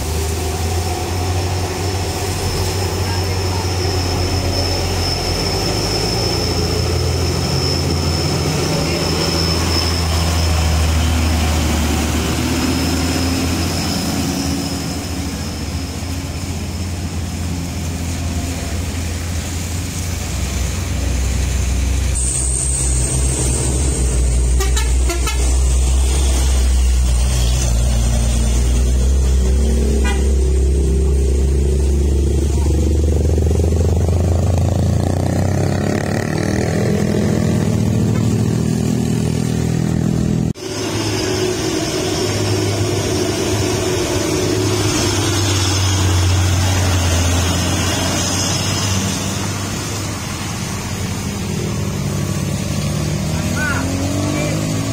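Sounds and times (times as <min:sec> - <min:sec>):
truck and car engines under load: 0:00.0 - 0:54.9
vehicle horn toot: 0:24.5 - 0:25.6, 0:30.0 - 0:30.5.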